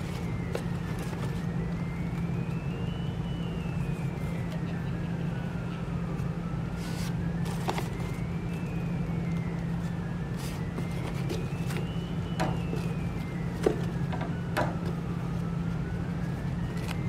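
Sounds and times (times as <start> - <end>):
low hum with sliding tone: 0.0 - 17.0
paper streamer rustling: 6.8 - 8.2.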